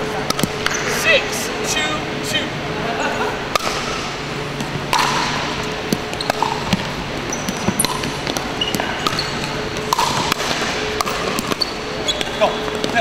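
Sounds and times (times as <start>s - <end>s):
sneaker squeaks on hardwood: 5.9s - 10.3s, 11.0s - 13.0s.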